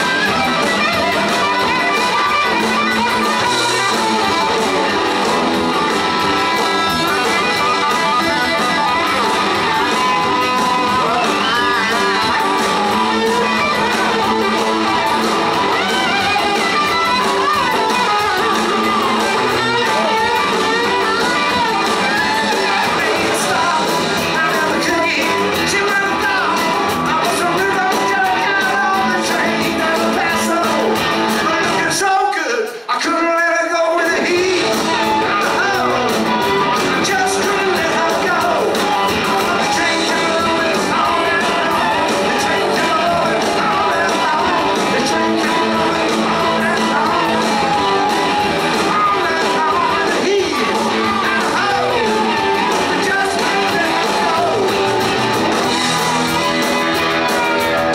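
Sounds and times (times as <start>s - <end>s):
person singing: 0.0s - 57.9s
rock band playing loudly: 0.0s - 57.9s.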